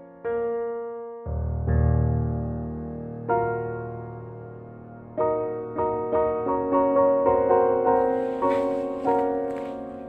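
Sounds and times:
soft piano notes: 0.0s - 10.0s.

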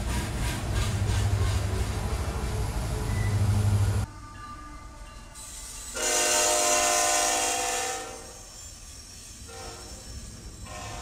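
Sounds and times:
train horn blasts: 1.9s - 8.5s, 9.5s - 10.1s, 10.7s - 11.0s.

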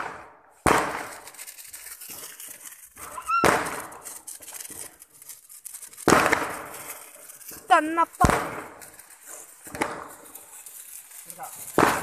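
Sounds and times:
firecracker bangs: 0.0s - 1.5s, 3.0s - 4.8s, 6.0s - 10.6s, 11.2s - 12.0s.

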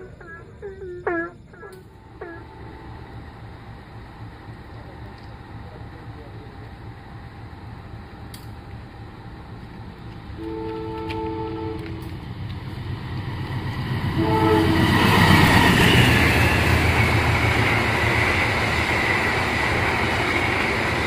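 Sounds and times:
train wheels rushing on rails: 1.4s - 21.0s
train horn blast: 10.4s - 12.2s, 14.1s - 16.1s.

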